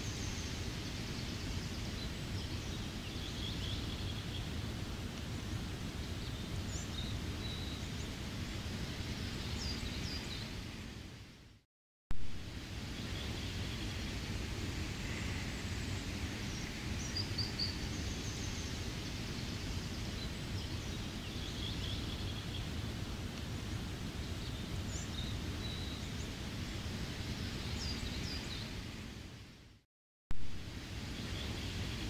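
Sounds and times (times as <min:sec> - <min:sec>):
steady rain: 0:12.2 - 0:29.6, 0:30.4 - 0:32.0.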